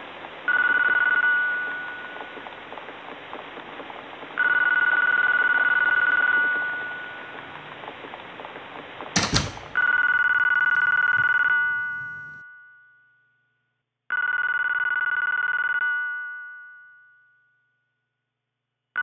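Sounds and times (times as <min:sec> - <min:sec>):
phone ringtone trilling: 0:00.5 - 0:02.2, 0:04.4 - 0:07.4, 0:09.8 - 0:12.9, 0:14.1 - 0:17.3
sharp click: 0:09.2 - 0:09.7.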